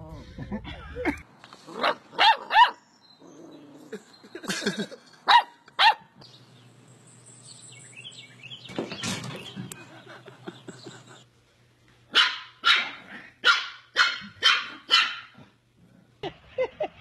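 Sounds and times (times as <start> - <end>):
person laughing: 0.1 - 1.2, 3.9 - 5.2, 9.6 - 11.3, 16.2 - 17.0
puppy yapping: 1.8 - 2.8.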